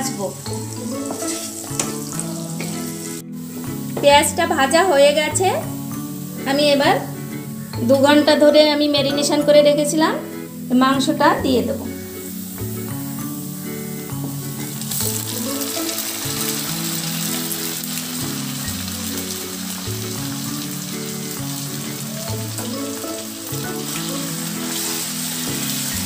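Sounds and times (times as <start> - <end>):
soft background music: 0.0 - 26.0
meat sizzling in hot oil: 0.3 - 4.0, 5.3 - 7.8, 11.9 - 26.0
spatula stirring: 0.8 - 3.2.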